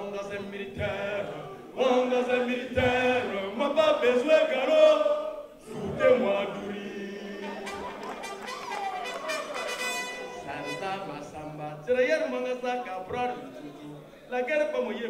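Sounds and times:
man chanting into a microphone: 0.0s - 1.3s, 10.4s - 15.0s.

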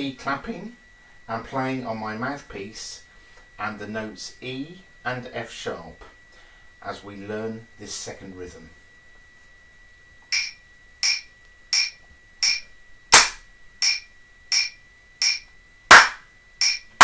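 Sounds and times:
metronome clicking: 10.2s - 17.0s
hands clapping: 13.2s - 14.0s, 14.6s - 16.8s.

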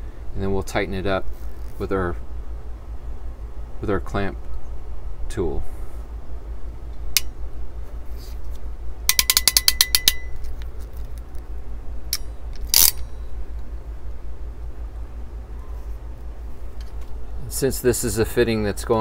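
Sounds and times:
clamp tool ratchet clicks: 9.1s - 10.6s, 12.1s - 13.1s.

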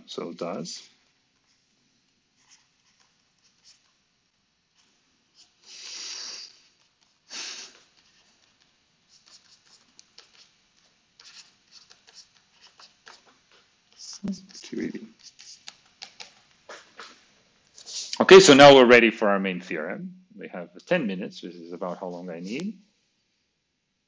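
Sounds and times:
stylus scratching on screen: 2.3s - 4.1s, 4.8s - 18.2s, 20.8s - 22.7s.

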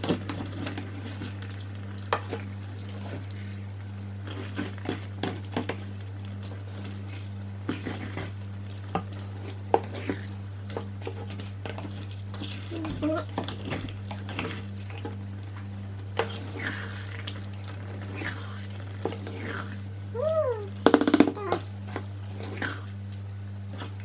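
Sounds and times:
wet stirring of pasta: 0.0s - 19.8s
low hum: 10.0s - 24.0s.

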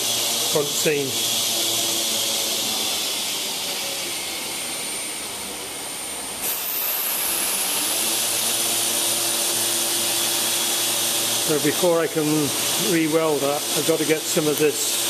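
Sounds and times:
machinery hissing rush with whine: 0.0s - 15.0s.

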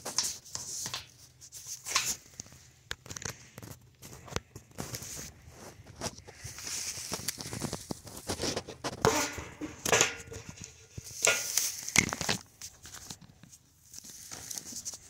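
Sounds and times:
rustling: 0.0s - 15.0s.

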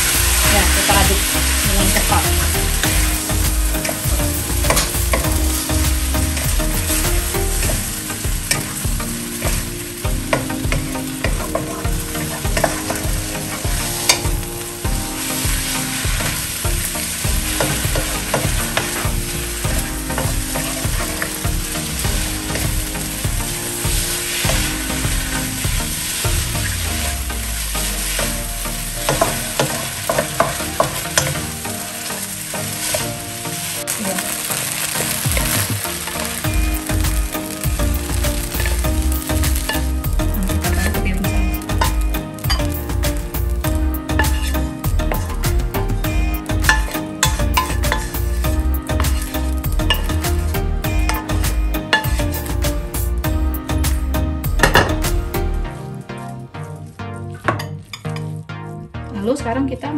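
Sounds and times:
noodles sizzling in frying pan: 0.0s - 56.9s
spatula scraping and tapping pan: 29.0s - 31.6s.

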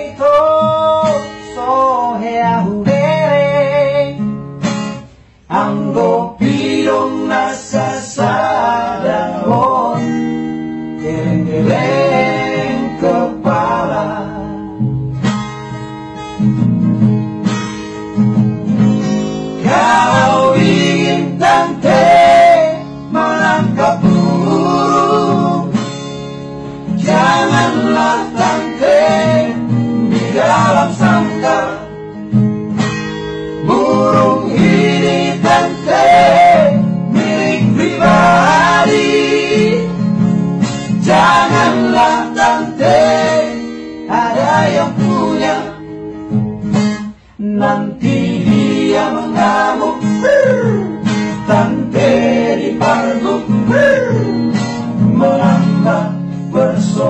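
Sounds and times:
man singing: 0.0s - 4.2s, 5.5s - 10.2s, 11.0s - 14.6s, 33.6s - 39.9s, 51.5s - 54.4s, 55.0s - 57.0s
acoustic guitar: 0.0s - 57.0s.

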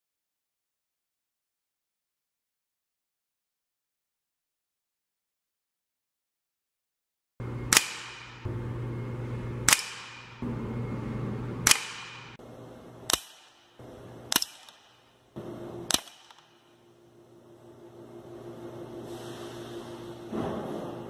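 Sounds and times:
air rifle firing: 7.7s - 8.5s, 9.7s - 10.4s, 11.6s - 12.4s, 13.1s - 15.1s, 15.9s - 16.6s.

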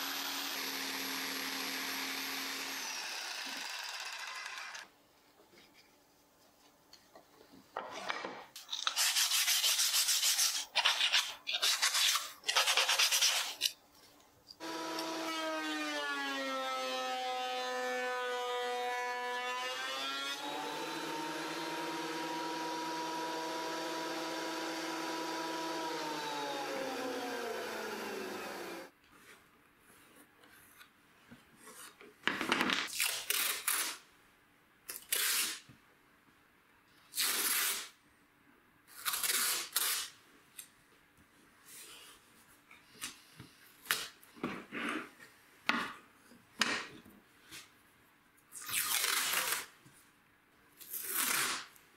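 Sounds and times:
thickness planer running: 0.0s - 4.8s, 14.6s - 15.6s, 20.4s - 28.9s
masking tape ripped off roll: 32.9s - 34.0s, 34.9s - 35.7s, 37.1s - 38.0s, 38.9s - 40.2s, 48.5s - 49.8s, 50.8s - 51.8s
paper tearing off wood: 38.9s - 40.2s, 48.6s - 49.8s, 50.8s - 51.8s.

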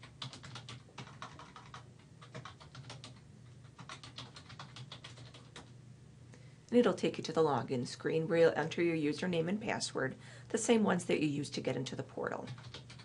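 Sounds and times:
keyboard typing: 0.0s - 5.7s, 12.5s - 13.0s.

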